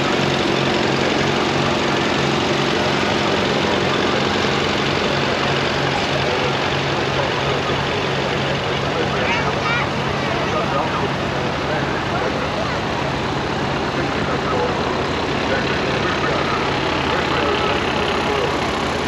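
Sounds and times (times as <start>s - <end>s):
tractor engine pulsing: 9.9s - 19.0s.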